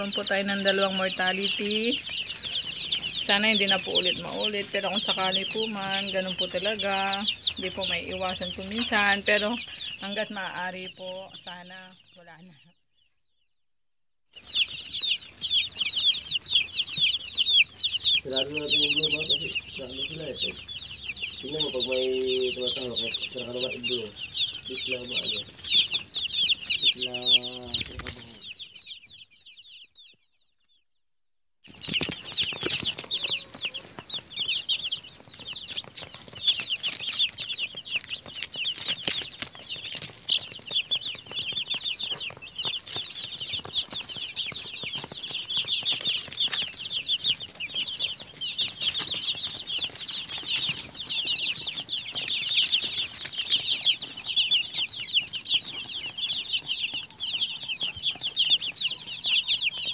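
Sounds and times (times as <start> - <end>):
chicks peeping: 0.0 - 13.1, 14.4 - 30.8, 31.6 - 59.9.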